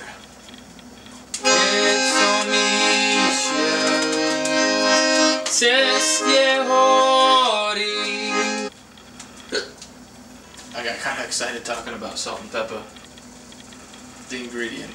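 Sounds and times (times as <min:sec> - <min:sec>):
accordion playing chords: 0:01.4 - 0:08.7.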